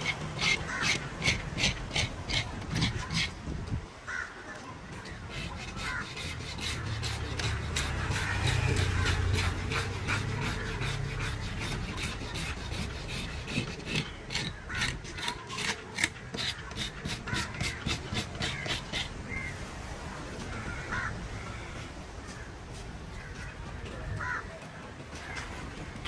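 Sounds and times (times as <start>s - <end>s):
scraper rasping fish scales: 0.0s - 3.4s, 4.9s - 19.2s
crow cawing: 0.4s - 3.2s, 4.0s - 11.3s, 16.1s - 19.6s, 20.5s - 25.7s.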